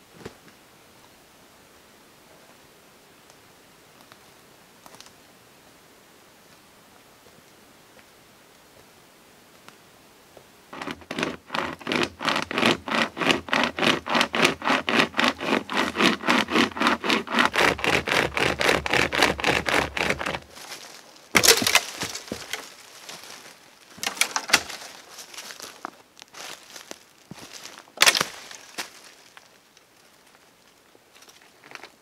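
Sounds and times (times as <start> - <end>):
saw cutting wood: 10.7 - 20.5, 21.4 - 22.7
twigs and leaves rustling: 14.9 - 32.0
stem cracking: 15.4 - 26.9, 28.0 - 29.5.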